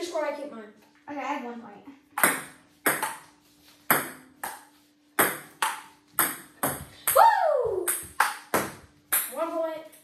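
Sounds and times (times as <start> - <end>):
ping pong ball hits: 2.2 - 3.3, 3.9 - 7.2, 7.8 - 9.4.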